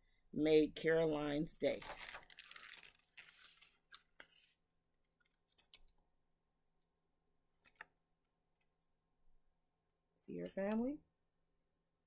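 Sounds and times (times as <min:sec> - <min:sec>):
paper book pages rustling: 0:01.7 - 0:04.6, 0:05.2 - 0:05.9.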